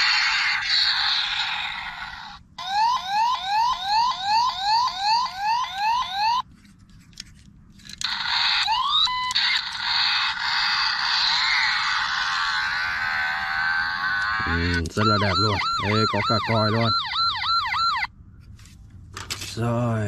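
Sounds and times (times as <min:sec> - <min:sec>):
toy electronic siren yelping: 0:00.0 - 0:06.4, 0:08.0 - 0:18.1.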